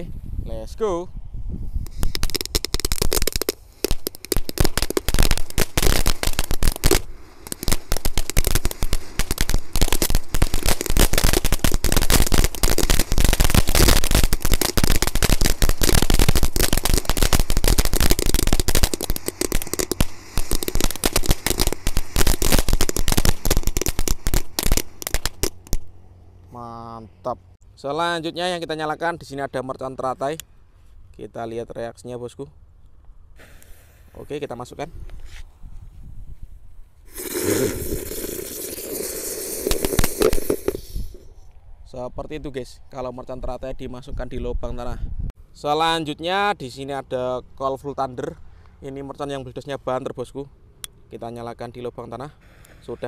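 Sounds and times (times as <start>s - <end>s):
firework crackling and popping: 1.8s - 25.9s, 33.4s - 34.4s, 37.1s - 41.4s.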